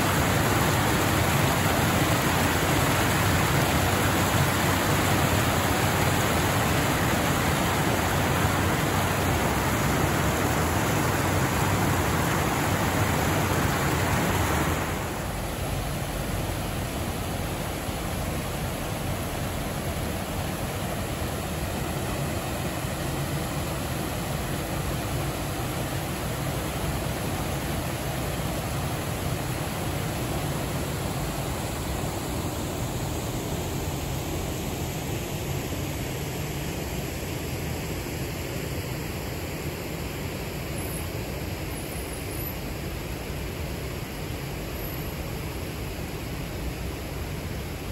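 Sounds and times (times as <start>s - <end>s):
river water rushing over weir: 0.0s - 37.0s.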